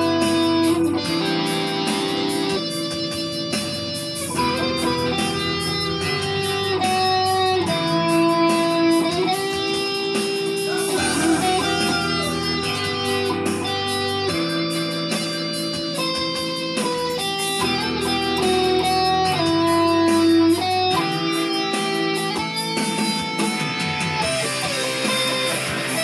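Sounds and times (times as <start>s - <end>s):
ballad backing track: 0.0s - 26.0s
electric guitar melody: 0.0s - 26.0s.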